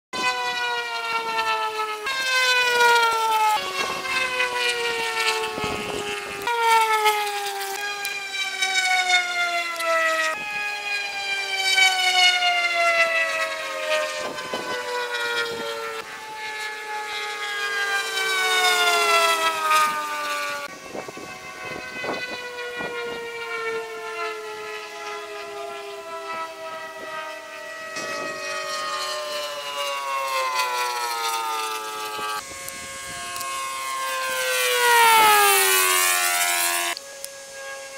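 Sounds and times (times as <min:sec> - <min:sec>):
sped-up propeller plane whine: 0:00.1 - 0:37.9.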